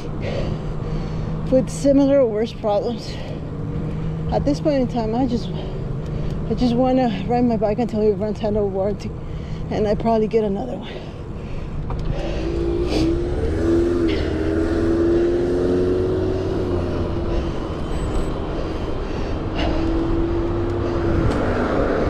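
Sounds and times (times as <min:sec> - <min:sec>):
tyre and road noise: 0:00.0 - 0:22.0
wind rushing over microphone: 0:11.8 - 0:22.0.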